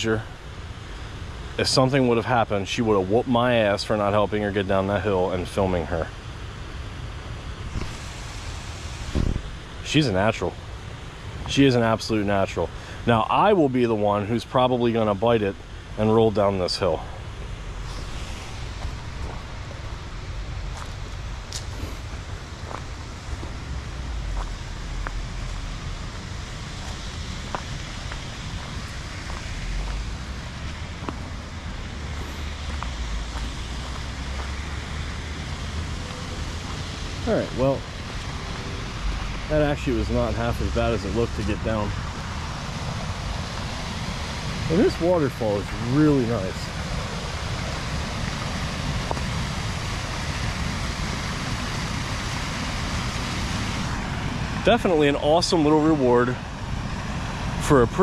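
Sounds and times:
waterfall and creek rushing: 0:00.0 - 0:58.0
wind rumble on microphone: 0:06.7 - 0:12.0
small waterfall pouring: 0:32.6 - 0:58.0.

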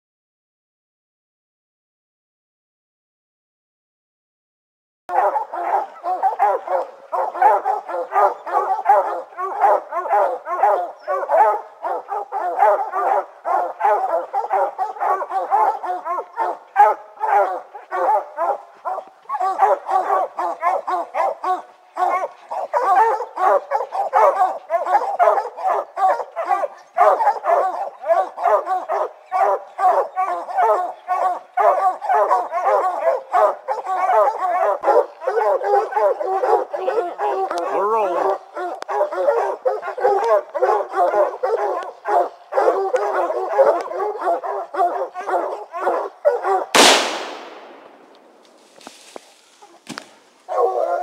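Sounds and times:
hounds barking: 0:05.1 - 0:48.0, 0:48.6 - 0:51.0.

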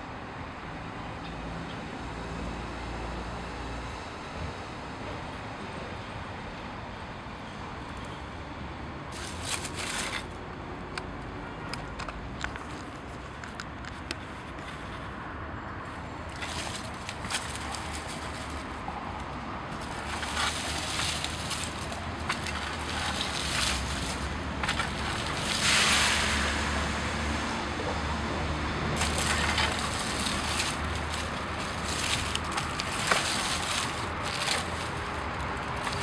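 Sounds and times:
rake scraping through leaves: 0:09.1 - 0:10.4, 0:16.3 - 0:27.0, 0:28.9 - 0:36.0
twigs ticking: 0:09.1 - 0:15.1, 0:16.0 - 0:26.8, 0:28.8 - 0:36.0.

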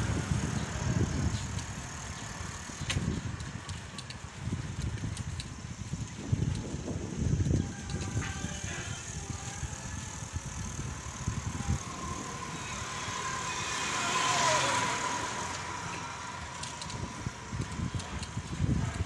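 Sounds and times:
low wind rumble: 0:00.0 - 0:19.0
motor vehicle passing by: 0:11.3 - 0:19.0.

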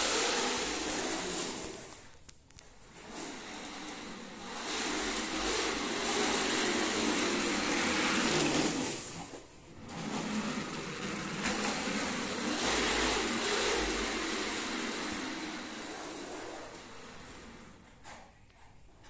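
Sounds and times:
plastic toy car wheels rolling: 0:00.0 - 0:18.3.

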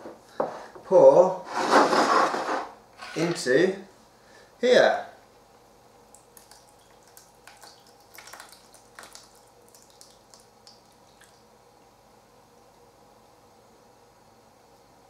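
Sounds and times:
pie filling dripping and splatting: 0:06.1 - 0:11.5.

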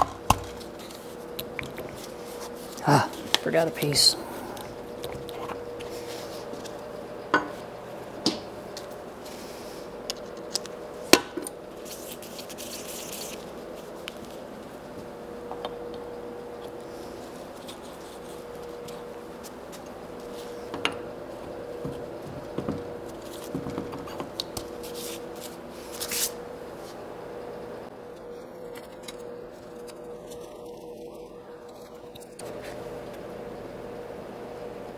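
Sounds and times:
faint steady hum: 0:00.0 - 0:34.9.

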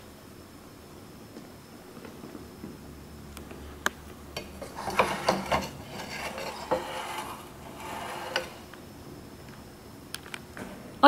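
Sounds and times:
rubbing: 0:04.4 - 0:08.7.

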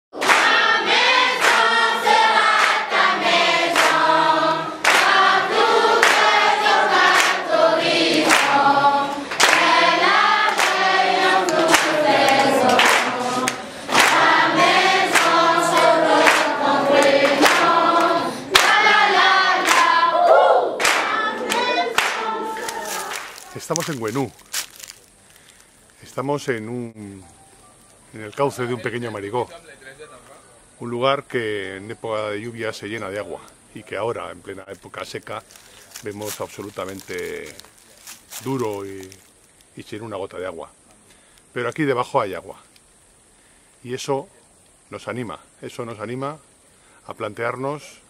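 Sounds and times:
group singing together: 0:00.2 - 0:23.4.

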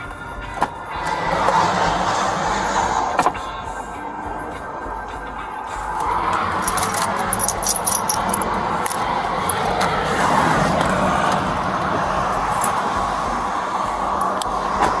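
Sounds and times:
outdoor noise: 0:00.0 - 0:15.0
gear rubbing and jangling: 0:06.0 - 0:09.9.

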